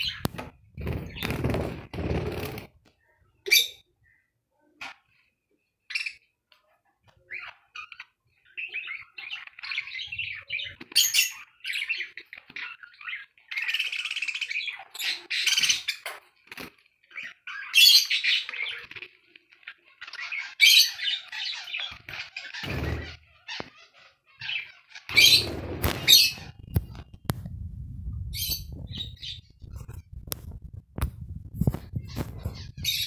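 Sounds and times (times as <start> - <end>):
budgerigars chirping: 19.9 - 26.7.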